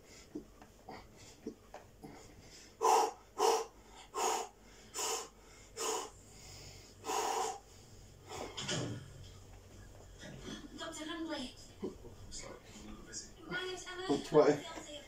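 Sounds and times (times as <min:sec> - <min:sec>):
man breathing out hard: 0:02.5 - 0:07.7.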